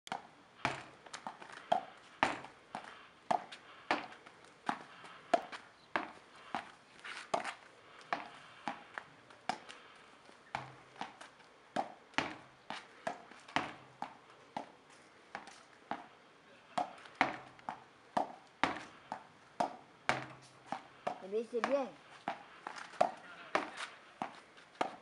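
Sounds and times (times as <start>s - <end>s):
plastic racket hitting ball against wall: 11.8s - 14.7s, 16.8s - 25.0s.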